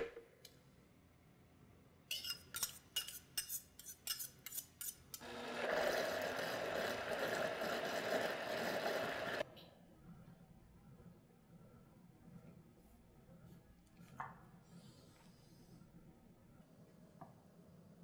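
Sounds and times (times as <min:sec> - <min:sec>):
blender motor running: 0:05.2 - 0:09.4.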